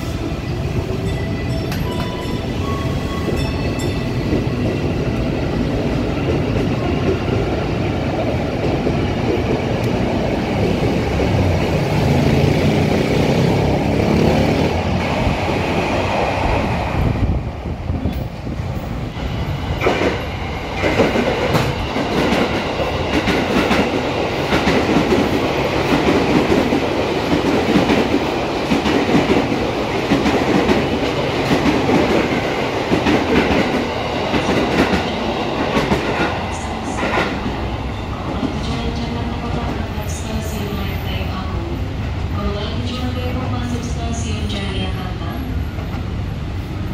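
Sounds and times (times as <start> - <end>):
train rumble: 0.0 - 46.9
train wheels clickety-clack: 19.7 - 37.6.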